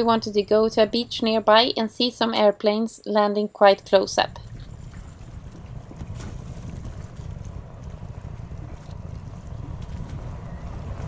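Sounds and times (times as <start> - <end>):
wind buffeting microphone: 4.2 - 11.0.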